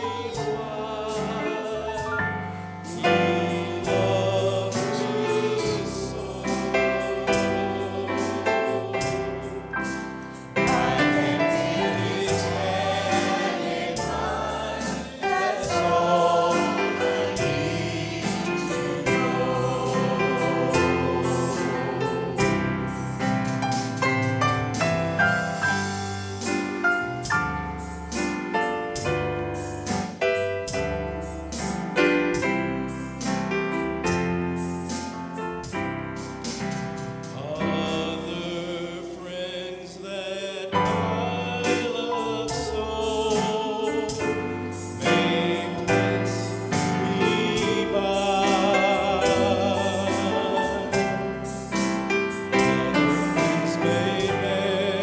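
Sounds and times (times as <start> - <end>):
choir singing a hymn: 0.0 - 23.8, 36.4 - 55.0
piano chords: 0.0 - 55.0.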